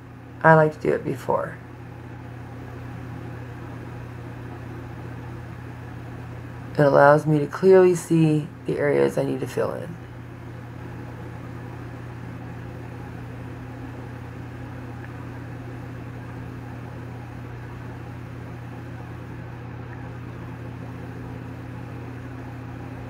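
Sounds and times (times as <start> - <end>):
electrical hum: 0.0 - 23.0.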